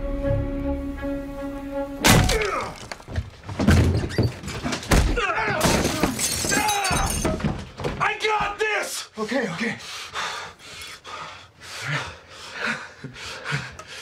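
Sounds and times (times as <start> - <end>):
tense music: 0.0 - 2.3
men grunting and shouting: 2.2 - 2.8.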